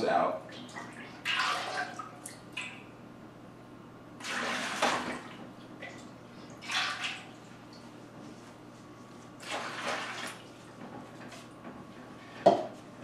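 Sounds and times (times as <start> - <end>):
water splashing and sloshing in pot: 0.5 - 2.7, 4.2 - 7.9, 9.4 - 11.4.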